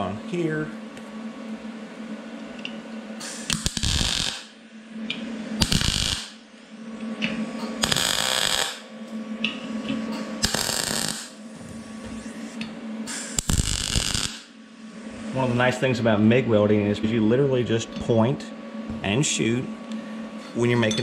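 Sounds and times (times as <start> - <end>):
steady low hum: 0.0 - 21.0
welding arc crackling: 3.2 - 4.6, 5.6 - 6.4, 7.8 - 8.8, 10.4 - 11.4, 13.1 - 14.5.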